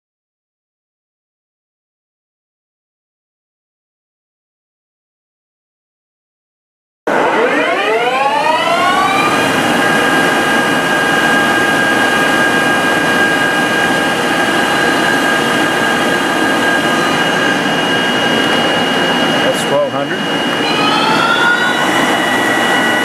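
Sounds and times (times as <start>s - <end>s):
lathe spindle whine: 7.1s - 23.0s
rush of noise: 7.1s - 23.0s.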